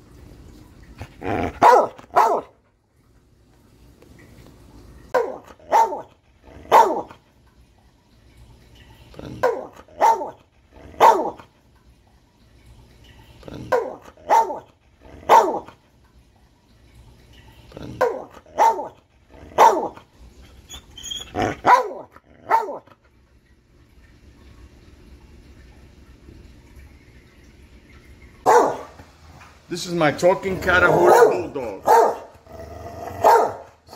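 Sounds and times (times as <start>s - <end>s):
dog barking: 1.6s - 2.6s, 5.1s - 7.2s, 9.3s - 11.4s, 13.6s - 15.7s, 18.0s - 20.0s, 21.4s - 22.9s, 28.4s - 29.0s, 30.9s - 32.3s, 33.2s - 33.8s.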